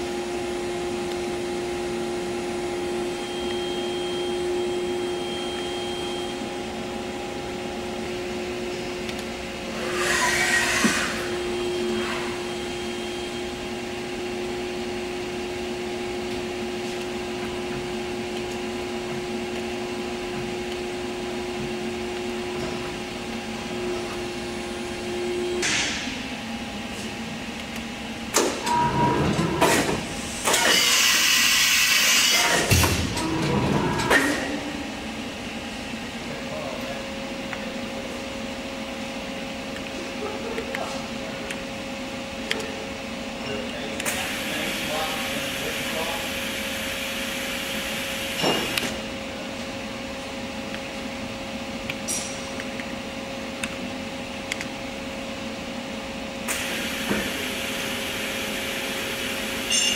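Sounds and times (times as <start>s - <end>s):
steady machine tone: 0.0s - 29.6s
machine humming: 0.0s - 59.9s.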